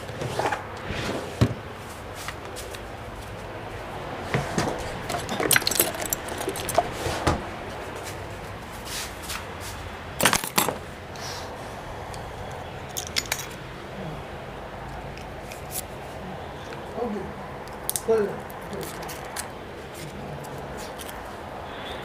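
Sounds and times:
hard objects clicking and clattering: 4.4 - 7.5, 10.2 - 10.8, 12.9 - 13.6.

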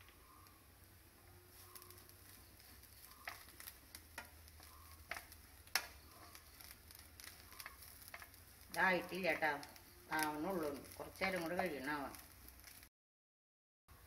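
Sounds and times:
spatula scraping frying pan: 1.5 - 11.6
spatula tapping pan: 1.7 - 8.4.

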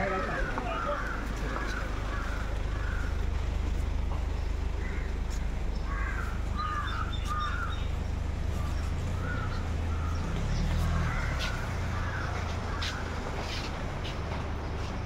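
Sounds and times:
crows cawing: 0.0 - 3.6, 4.7 - 7.9, 8.6 - 13.7
low engine rumble: 0.0 - 15.0.

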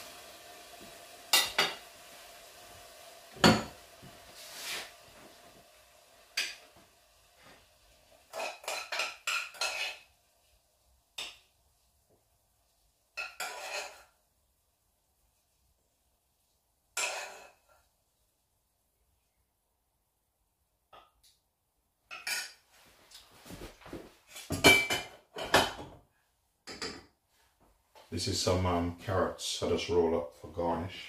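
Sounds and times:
faint steady hiss: 0.0 - 31.0
metal utensil scraping frying pan: 8.2 - 10.1, 13.2 - 14.2, 17.0 - 17.8, 22.1 - 22.6.

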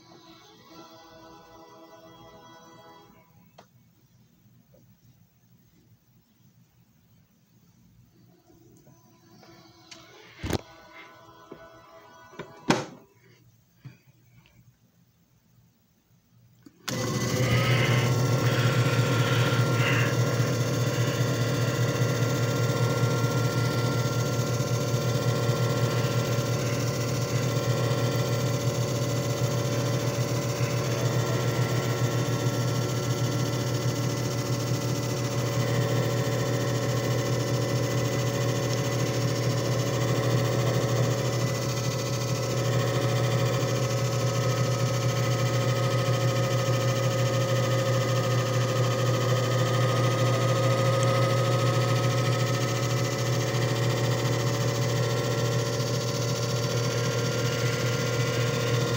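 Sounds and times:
machine switching on: 8.8 - 13.3, 16.6 - 58.9
machine motor humming: 16.7 - 58.9.

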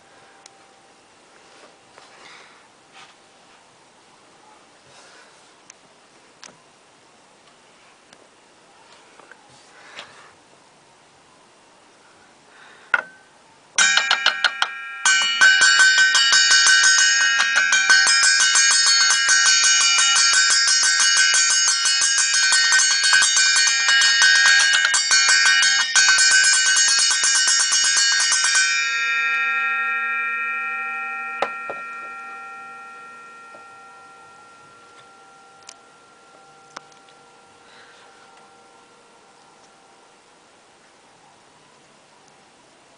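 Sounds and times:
saw blade struck ringing like bell: 13.8 - 39.0.

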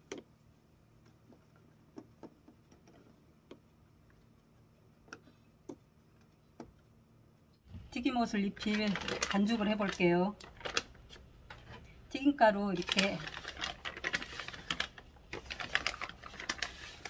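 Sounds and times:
faint clicks and taps: 1.0 - 6.9.

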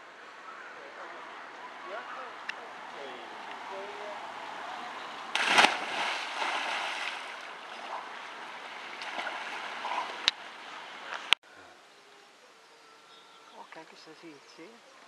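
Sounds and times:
pool water splashing: 2.7 - 11.4.

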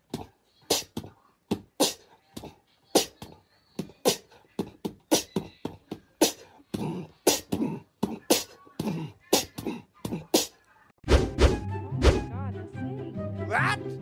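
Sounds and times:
beatbox mouth percussion: 0.0 - 10.6.

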